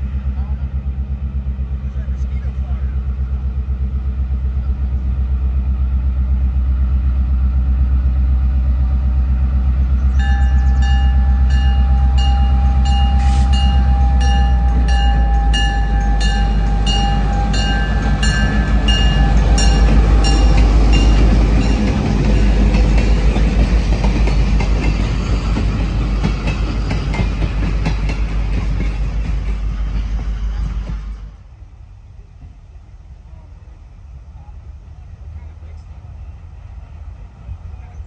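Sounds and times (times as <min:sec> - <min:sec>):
diesel locomotive engine drone: 0:00.0 - 0:38.0
locomotive bell ringing: 0:10.1 - 0:23.5.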